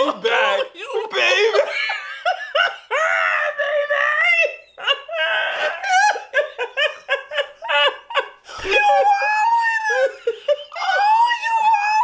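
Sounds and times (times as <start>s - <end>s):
men laughing: 0.0s - 12.0s.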